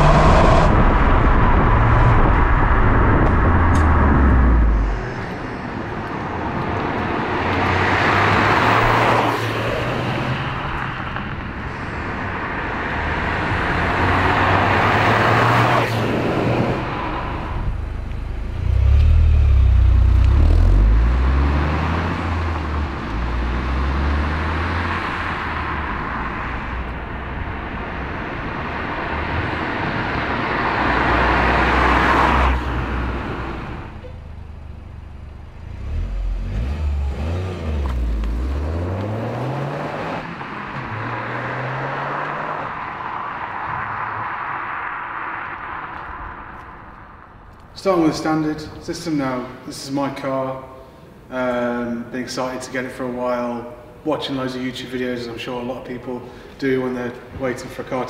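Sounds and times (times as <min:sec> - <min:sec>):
car engine accelerating past: 0:18.5 - 0:26.9, 0:35.6 - 0:46.7.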